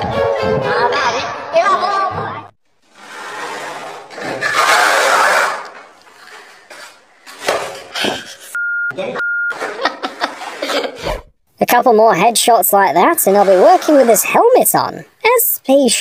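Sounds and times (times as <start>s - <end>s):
censor bleeps: 8.6s - 9.6s.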